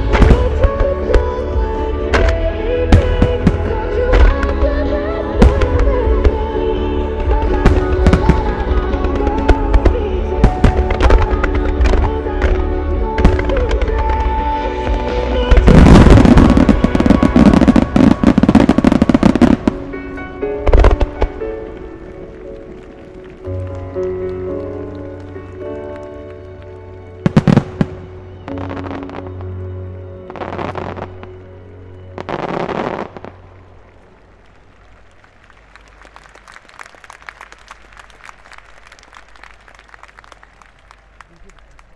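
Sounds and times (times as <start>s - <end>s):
fireworks bangs and crackling: 0.0s - 24.0s, 27.2s - 29.4s, 32.2s - 34.1s
music: 0.0s - 41.9s
spectators clapping: 21.6s - 27.8s, 33.8s - 41.9s.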